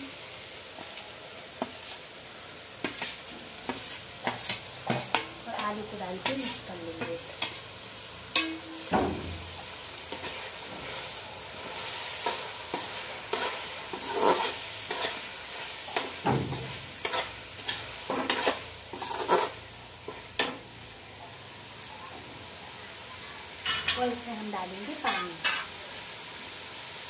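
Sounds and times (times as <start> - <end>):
gravy sizzling: 0.0 - 27.0
metal spoon scraping a pan: 2.8 - 20.7, 23.6 - 24.3, 24.9 - 25.8.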